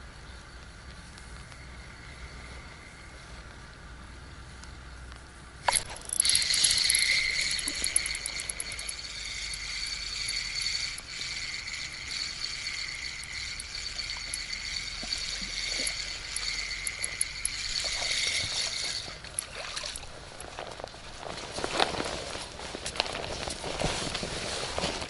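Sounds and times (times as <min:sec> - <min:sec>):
spinning reel whining: 0:05.7 - 0:20.4.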